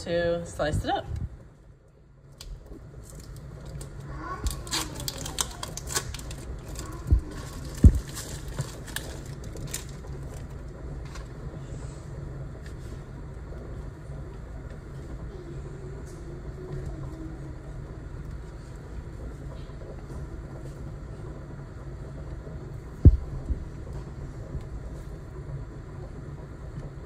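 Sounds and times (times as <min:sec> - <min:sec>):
steady low hum: 0:00.0 - 0:27.0
heavy thumps: 0:23.0 - 0:23.7.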